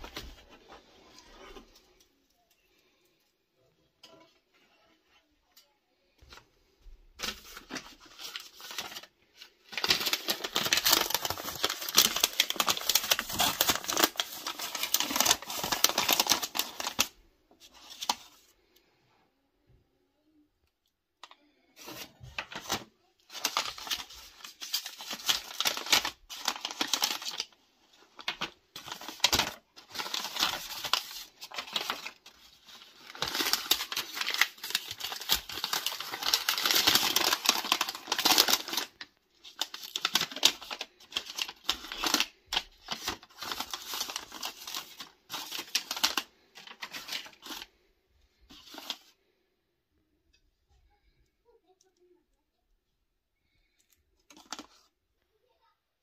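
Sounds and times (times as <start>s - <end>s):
paper crinkling and tearing: 7.2s - 18.4s, 21.8s - 49.2s, 54.3s - 54.9s.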